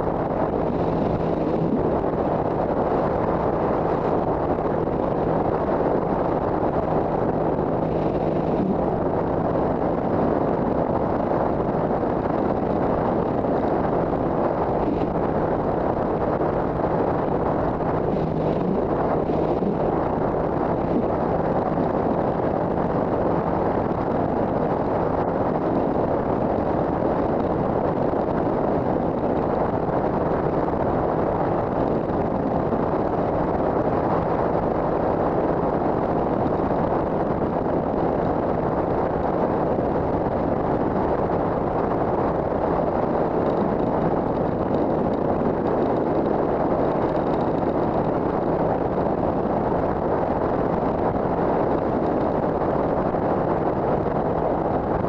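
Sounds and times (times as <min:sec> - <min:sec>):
wind rushing on microphone: 0:00.0 - 0:55.0.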